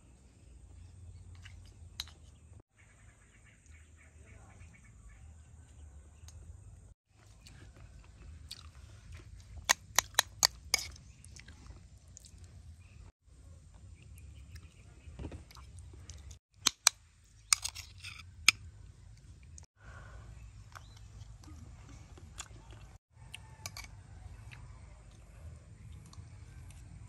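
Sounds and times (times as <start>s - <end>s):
soft chewing: 7.1s - 16.4s, 20.4s - 27.0s.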